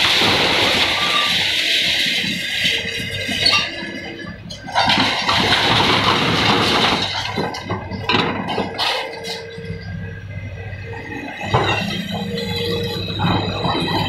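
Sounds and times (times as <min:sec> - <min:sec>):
concrete rubble and metal falling: 0:00.0 - 0:02.4, 0:03.0 - 0:09.8
excavator engine running: 0:00.0 - 0:14.0
debris knocking: 0:04.7 - 0:09.4.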